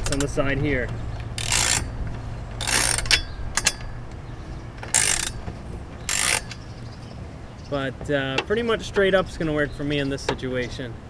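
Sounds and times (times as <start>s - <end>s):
ratcheting wrench clicking: 0.0s - 4.1s, 4.8s - 6.8s.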